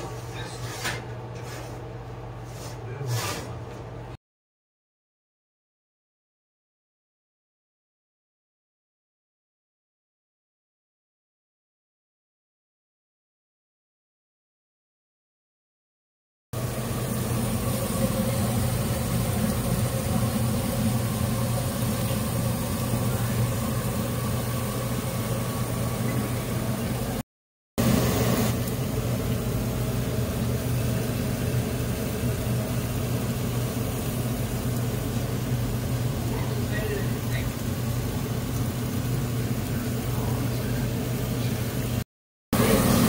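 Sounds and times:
low mechanical hum with hiss: 0.0s - 4.2s, 16.6s - 27.2s, 27.8s - 42.0s, 42.6s - 43.0s.

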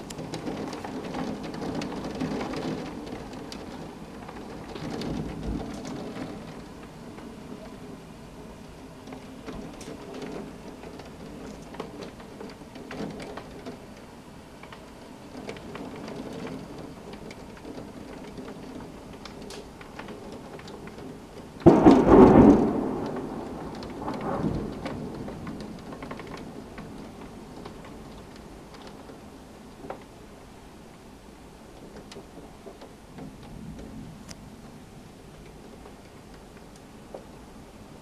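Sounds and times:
thunder rumbling: 0.0s - 12.4s, 20.8s - 28.8s
steady rain: 0.0s - 38.0s
loud thunderclap: 21.6s - 27.3s.

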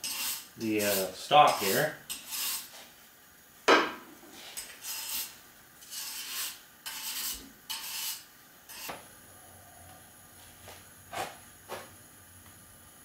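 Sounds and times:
wire brush scraping steel: 0.0s - 2.8s, 4.4s - 9.0s.

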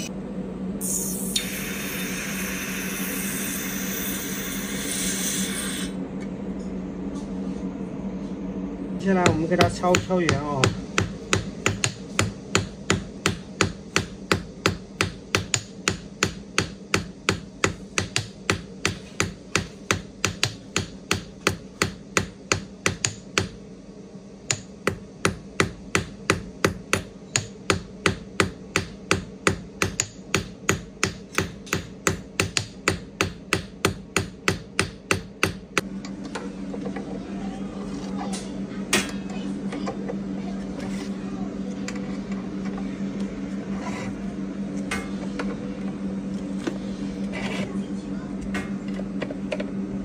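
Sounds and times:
steady low hum: 0.0s - 50.0s.

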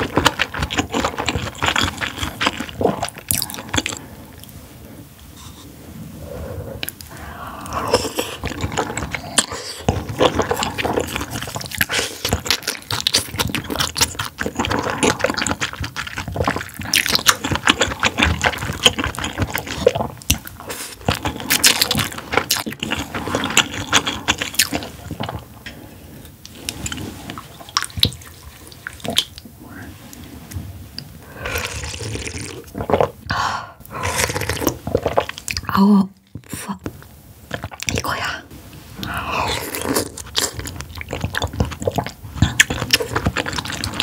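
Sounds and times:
wet chewing and squelching: 0.0s - 4.5s, 6.8s - 25.6s, 26.4s - 29.5s, 34.1s - 36.6s, 37.5s - 38.1s, 39.0s - 44.0s.

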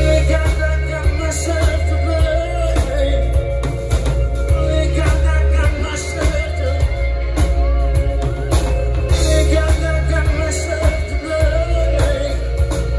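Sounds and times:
acoustic and electric guitars: 0.0s - 12.9s
bass guitar: 0.0s - 12.9s
drum kit: 0.0s - 12.9s
person singing: 0.0s - 12.9s.

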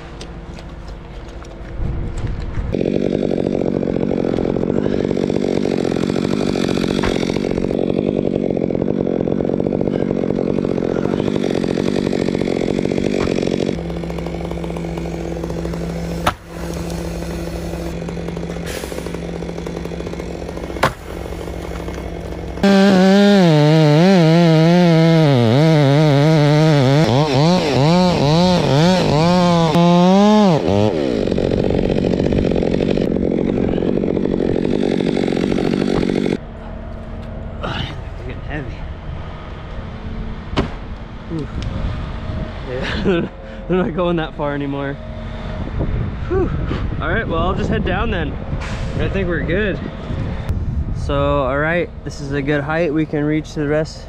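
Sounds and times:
chainsaw running: 2.4s - 37.9s
sharp knocks: 20.0s - 22.5s, 40.6s - 40.8s.

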